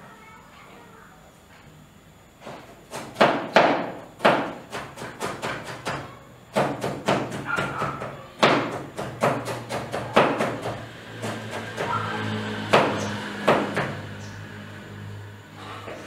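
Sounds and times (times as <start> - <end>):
knife chopping on cutting board: 2.9 - 6.0.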